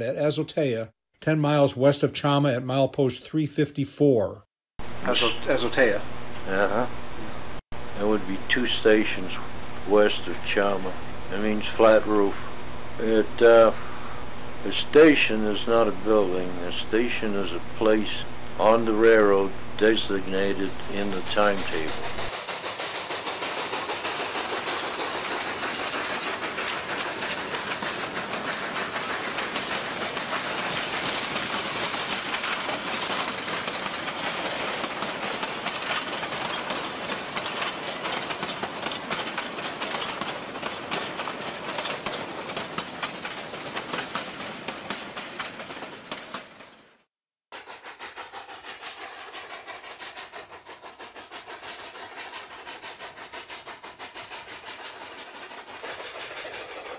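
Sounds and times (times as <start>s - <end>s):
thin high whine: 4.8s - 29.2s
distant train running: 4.8s - 47.0s, 47.6s - 56.9s
wheels clicking over rail joints: 19.9s - 46.9s.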